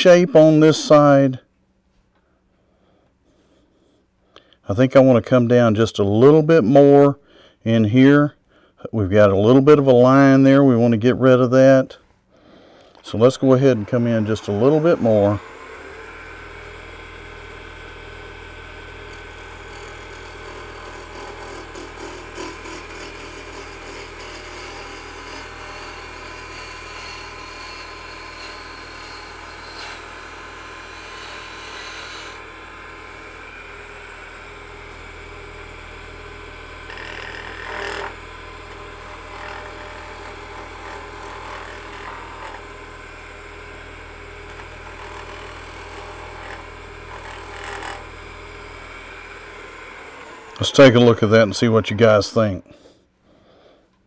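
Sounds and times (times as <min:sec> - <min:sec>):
lathe motor hum: 0:13.0 - 0:51.6.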